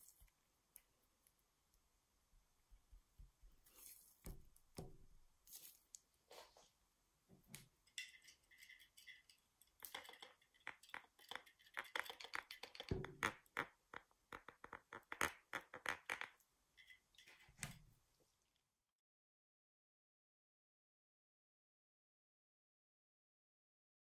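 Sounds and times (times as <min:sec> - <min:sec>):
rapid small clicks and rattles: 0:07.9 - 0:17.6.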